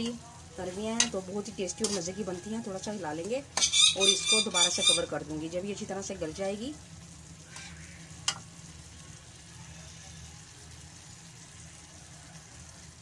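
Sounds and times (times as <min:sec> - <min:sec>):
low steady hum: 0:00.0 - 0:12.2
food sizzling in a pan: 0:00.0 - 0:13.0
spatula clinking on pan: 0:01.8 - 0:02.1, 0:03.6 - 0:05.0.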